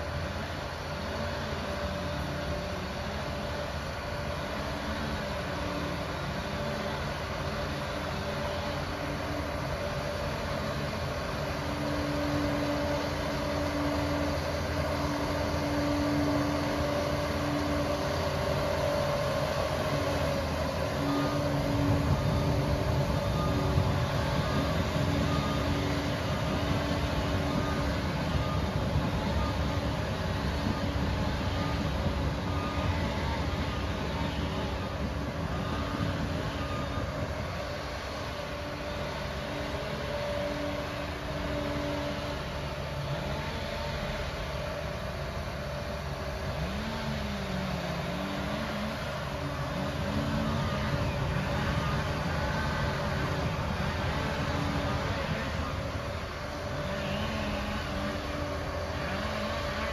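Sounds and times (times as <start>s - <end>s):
bulldozer diesel engine: 0.0s - 59.9s
reverse alarm beeping: 15.0s - 42.4s.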